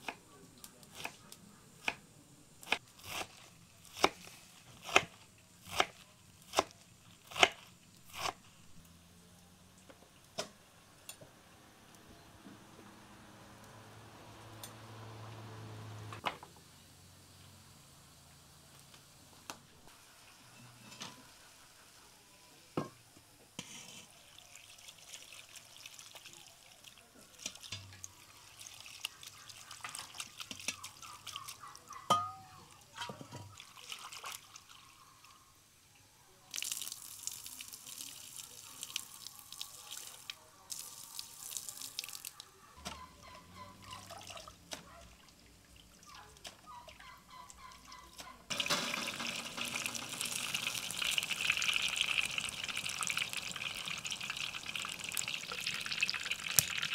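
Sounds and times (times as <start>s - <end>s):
water splashing into a steel bowl: 24.2s - 32.4s, 33.4s - 34.8s, 36.5s - 42.4s, 48.5s - 56.9s
bowl clinking: 32.1s - 32.6s.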